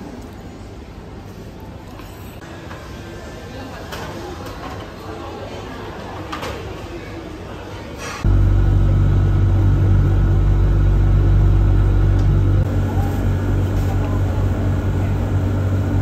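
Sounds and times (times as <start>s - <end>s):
vehicle cabin hum and rumble: 8.3s - 16.0s.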